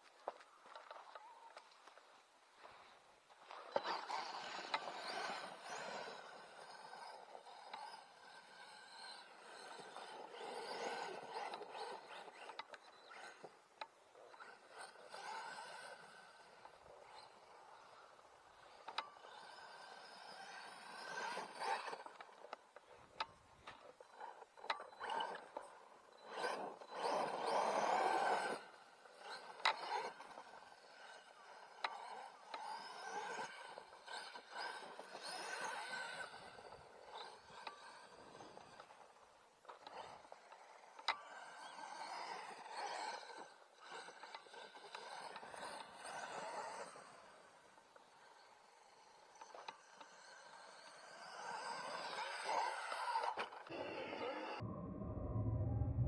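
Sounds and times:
gravel clicking: 0.0s - 48.2s
rc truck motor and tyres: 0.0s - 56.0s.

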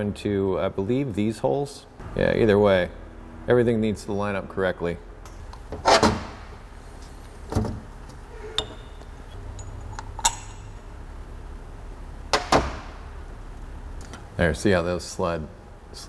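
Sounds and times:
metal parts clinking: 8.5s - 10.9s.

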